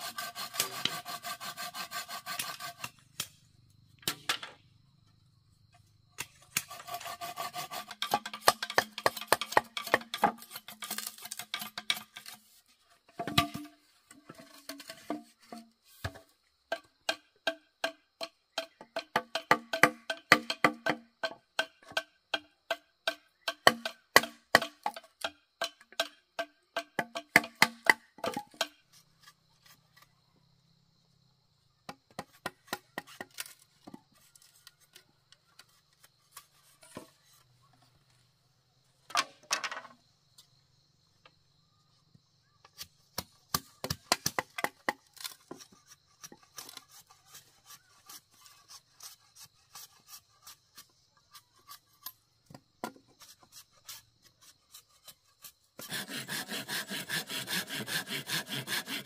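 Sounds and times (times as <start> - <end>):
machete striking bamboo: 2.4 - 4.6, 19.3 - 21.0, 23.1 - 26.1, 42.8 - 45.6.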